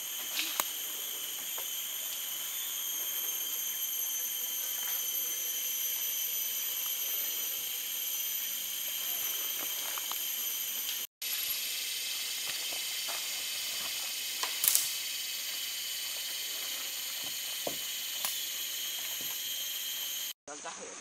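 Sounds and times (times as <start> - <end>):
sharp crackle: 0.0 - 20.4
chorus of rainforest insects: 0.0 - 21.0.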